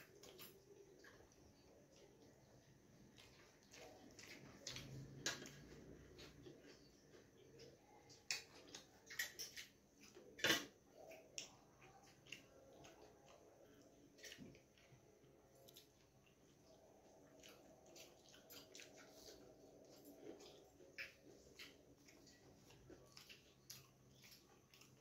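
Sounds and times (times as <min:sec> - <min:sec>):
soft wet squishes of mixing food: 0:00.0 - 0:25.0.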